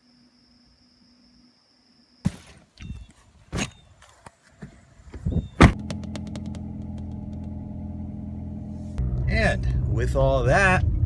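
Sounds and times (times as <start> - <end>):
knocks and bumps: 4.6 - 7.6
heavy thump: 5.6 - 7.6
car engine running: 5.6 - 11.0.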